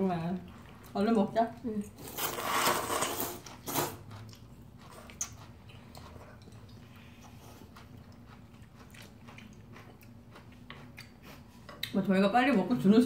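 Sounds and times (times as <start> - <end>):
chewing with wet mouth clicks: 4.0 - 12.0.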